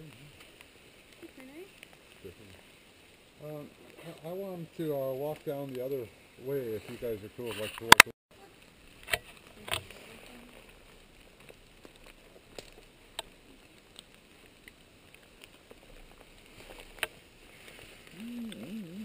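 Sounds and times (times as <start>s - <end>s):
twigs snapping: 9.0s - 18.7s.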